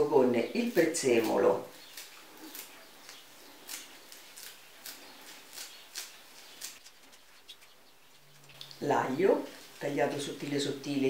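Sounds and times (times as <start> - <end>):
knife snipping parsley: 0.6 - 7.7.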